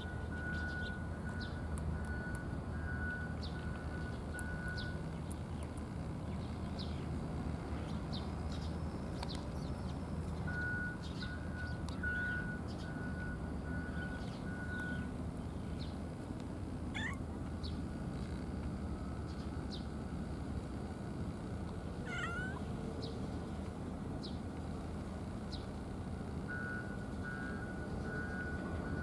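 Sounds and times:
cat meowing: 17.0s - 17.2s, 22.0s - 22.7s.

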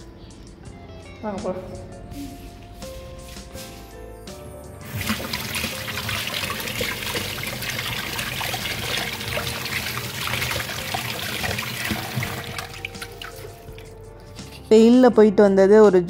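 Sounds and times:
tap water splashing into sink: 4.8s - 13.9s.

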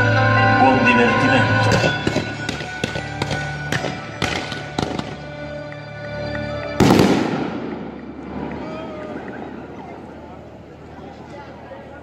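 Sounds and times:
music soundtrack: 0.0s - 10.9s
fireworks bursting with sharp bangs: 1.8s - 5.2s, 6.8s - 8.5s
loud fireworks blast: 6.8s - 9.6s.

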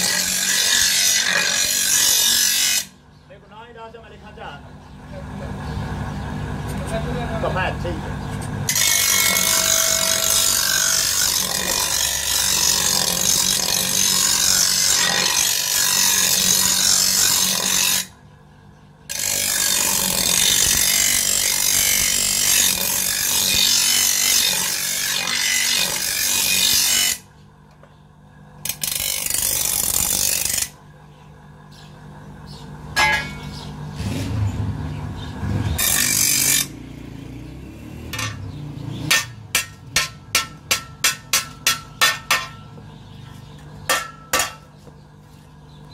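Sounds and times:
blade grinding on grinding wheel: 0.0s - 3.0s, 8.6s - 18.2s, 19.0s - 27.3s, 28.6s - 30.8s, 35.2s - 37.0s, 38.0s - 44.8s
motor hum: 4.4s - 45.9s.

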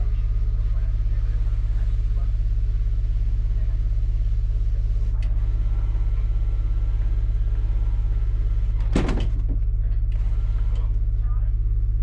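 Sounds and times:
generator humming: 0.0s - 12.0s.

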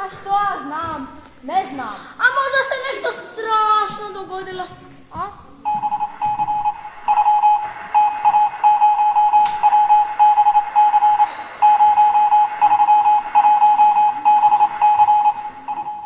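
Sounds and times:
morse code beeps: 5.6s - 16.0s.

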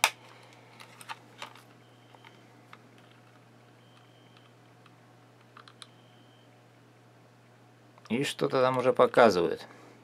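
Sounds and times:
faint low hum: 0.0s - 10.0s
faint high beeps: 1.8s - 2.4s, 3.7s - 4.5s, 5.8s - 6.5s.

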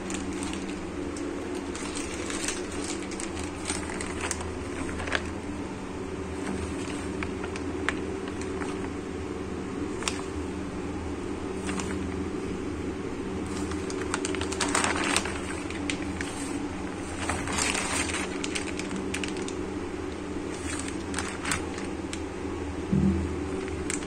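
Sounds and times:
plastic bags crinkling: 0.0s - 5.6s, 6.3s - 9.0s, 11.5s - 12.2s, 13.4s - 19.7s, 20.4s - 22.3s, 23.5s - 24.0s
steady low hum: 0.0s - 24.0s.

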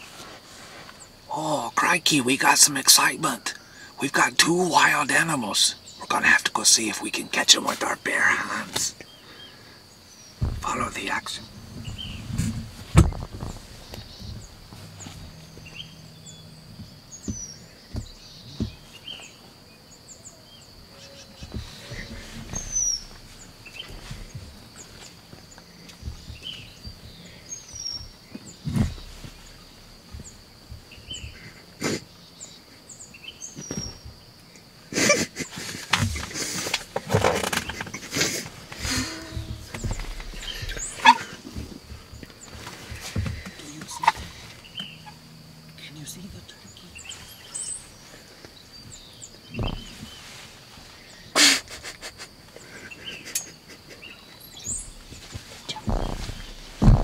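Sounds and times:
high insect drone: 0.0s - 57.0s
small birds chirping: 0.0s - 57.0s
low rustle: 10.2s - 19.6s, 21.2s - 31.6s, 54.7s - 57.0s
turkey gobbling: 40.5s - 41.3s.

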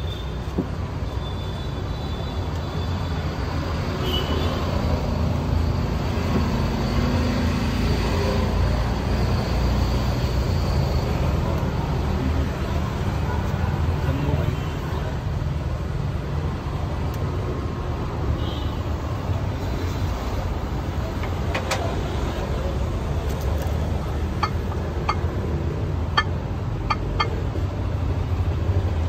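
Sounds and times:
low rumble of passing vehicles: 0.0s - 29.0s.

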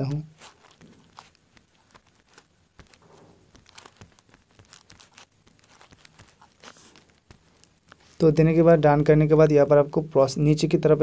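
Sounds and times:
fingers tapping touchscreen keyboard: 0.6s - 8.2s.

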